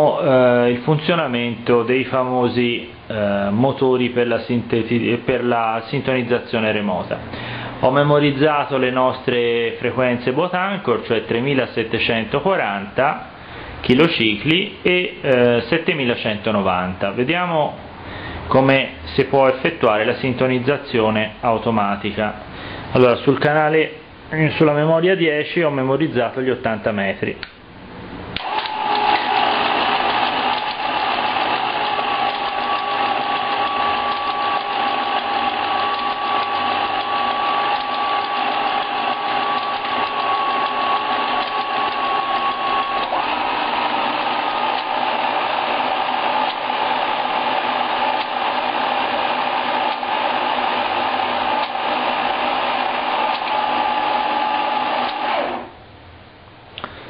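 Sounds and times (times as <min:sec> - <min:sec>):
motor and gears whining: 0:28.4 - 0:55.8.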